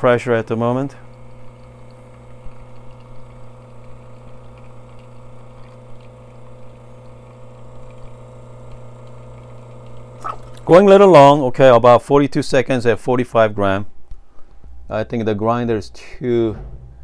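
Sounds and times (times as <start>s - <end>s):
espresso machine pump humming: 0.0s - 11.3s.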